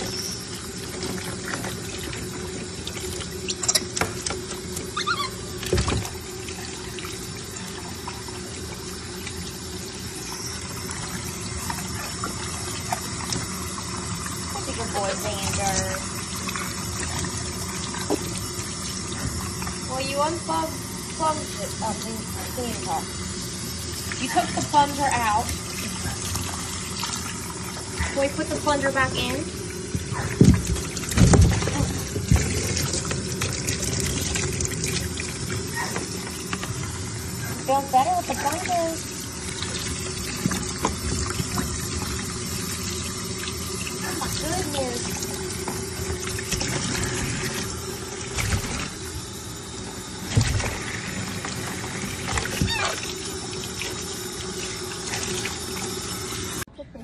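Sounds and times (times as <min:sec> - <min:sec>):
running water splashing: 0:00.0 - 0:56.7
tap water splashing on fur: 0:17.9 - 0:18.5, 0:30.0 - 0:35.0, 0:39.6 - 0:42.2, 0:50.3 - 0:53.0.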